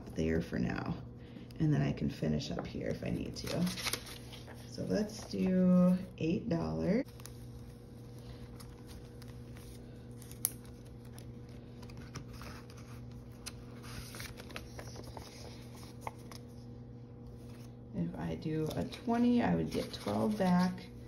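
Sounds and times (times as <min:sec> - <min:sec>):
steady low hum: 0:00.0 - 0:21.0
pages turning: 0:03.1 - 0:05.5, 0:07.0 - 0:16.7, 0:19.5 - 0:21.0
paper bills shuffled: 0:03.1 - 0:06.0, 0:07.0 - 0:16.6, 0:18.6 - 0:21.0
paper rustling: 0:03.1 - 0:06.0, 0:07.1 - 0:16.6, 0:18.6 - 0:21.0.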